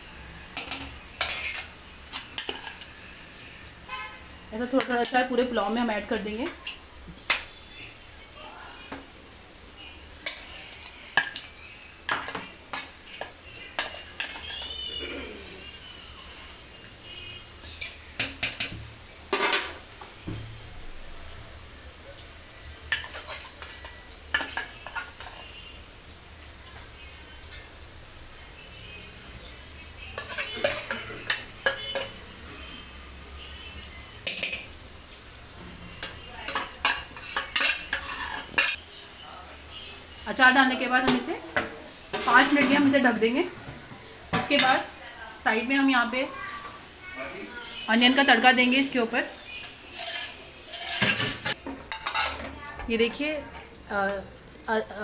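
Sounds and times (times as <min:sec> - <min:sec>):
spoon clinking on steel plate: 0:00.6 - 0:02.9, 0:12.1 - 0:14.8, 0:22.9 - 0:25.5, 0:30.2 - 0:32.2, 0:34.2 - 0:34.7, 0:36.0 - 0:38.8, 0:49.6 - 0:52.6.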